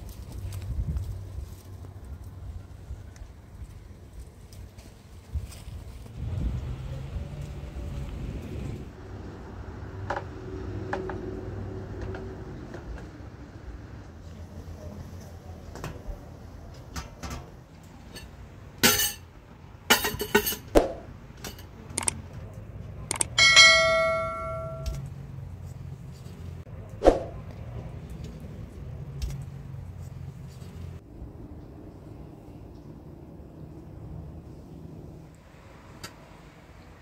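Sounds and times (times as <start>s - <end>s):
metal dishes clinking: 18.1s - 19.3s, 19.9s - 20.7s, 23.4s - 25.0s
bell-like metal ring: 23.4s - 25.0s.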